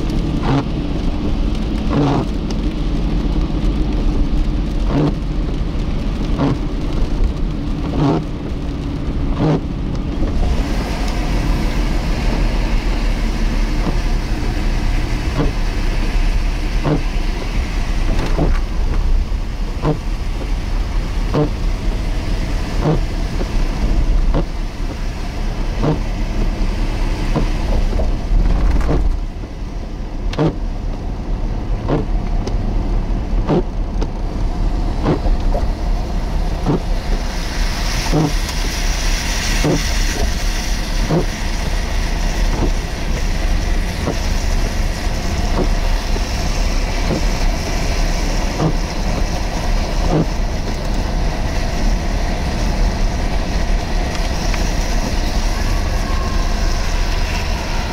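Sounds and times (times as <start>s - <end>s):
motor vehicle rumble: 0.0s - 57.9s
hiss: 36.5s - 57.9s.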